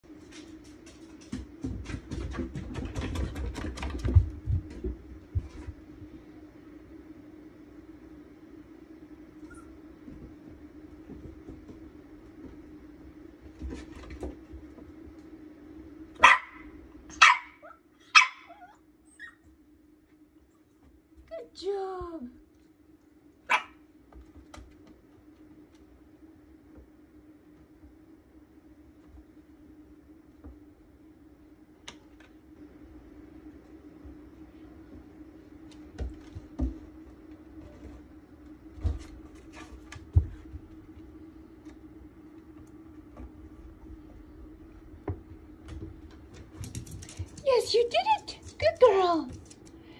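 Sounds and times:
dog paws thumping on wooden stairs: 0:00.3 - 0:05.9, 0:10.0 - 0:15.0, 0:34.9 - 0:49.7
dog barking: 0:16.2 - 0:19.4, 0:23.5 - 0:23.8
low hum: 0:18.8 - 0:47.4.

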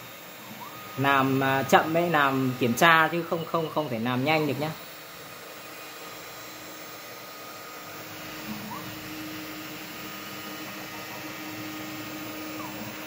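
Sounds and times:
milling machine motor whine: 0:00.0 - 0:13.0
motor chirp: 0:00.0 - 0:13.0.

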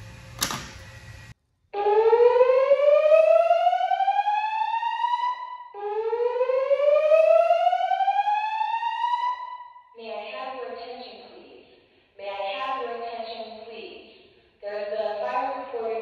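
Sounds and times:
fire alarm whoop tone: 0:01.8 - 0:09.9.

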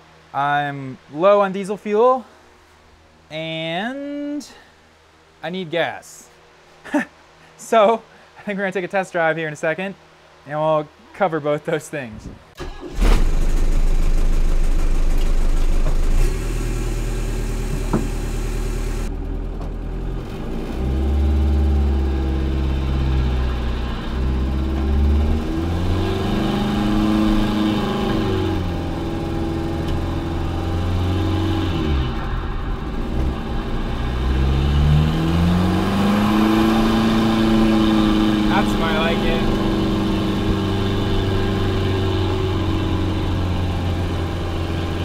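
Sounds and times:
diesel engine revving: 0:12.6 - 0:45.0.

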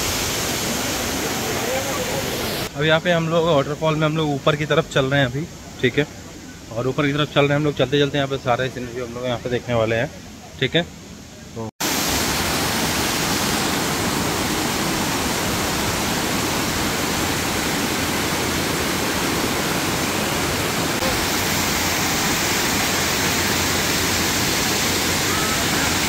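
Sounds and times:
waterfall rushing: 0:00.0 - 0:02.7, 0:11.8 - 0:26.0.

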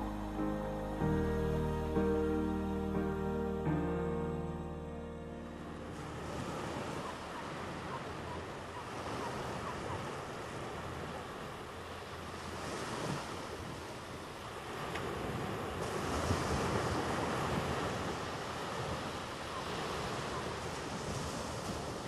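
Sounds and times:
wind: 0:00.0 - 0:22.0
waves washing on shore: 0:05.9 - 0:22.0.

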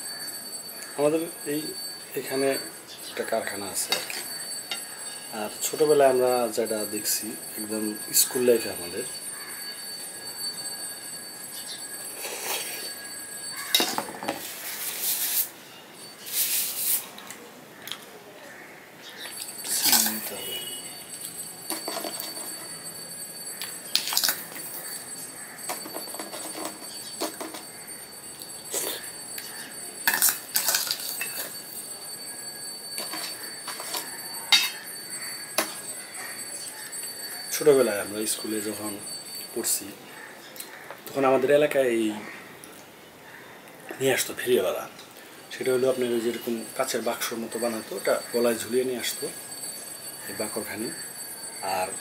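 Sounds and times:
spoon clinking against steel bowl: 0:03.8 - 0:05.3, 0:19.2 - 0:32.2, 0:32.8 - 0:39.7.

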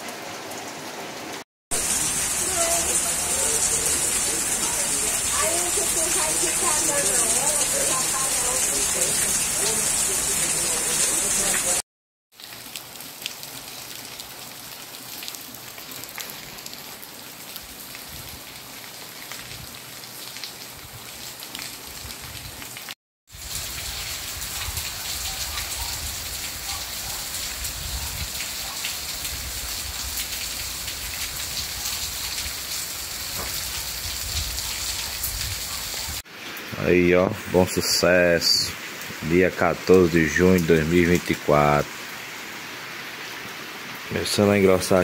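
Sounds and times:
rain falling on the ground: 0:00.0 - 0:45.0.

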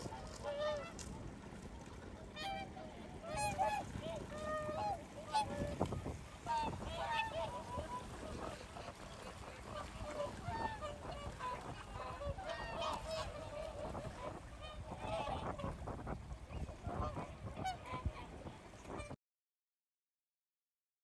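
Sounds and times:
swans calling: 0:00.0 - 0:01.0, 0:02.2 - 0:15.9, 0:16.6 - 0:18.4.

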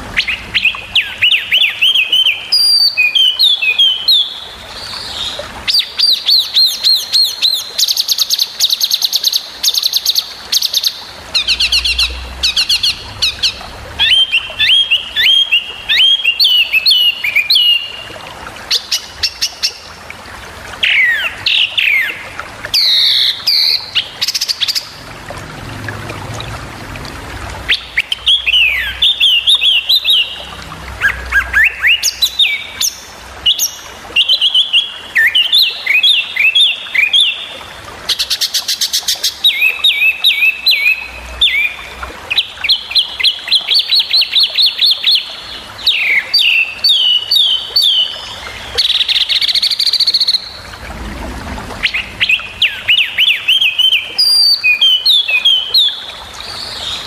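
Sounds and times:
songbird singing: 0:00.2 - 0:18.0.

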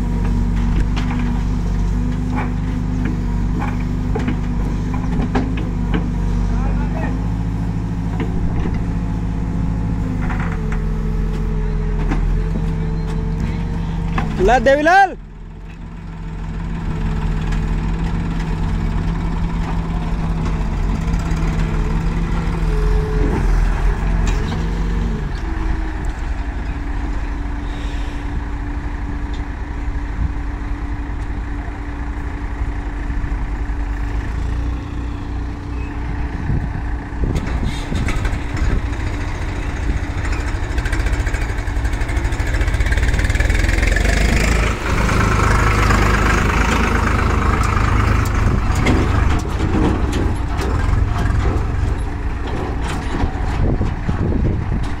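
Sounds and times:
diesel engines running: 0:00.0 - 0:55.0
tractor engine running loud: 0:00.0 - 0:55.0.

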